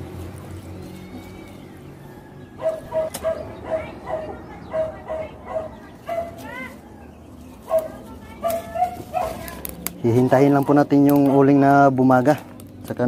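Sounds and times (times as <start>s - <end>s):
animal calling: 0.6s - 9.6s.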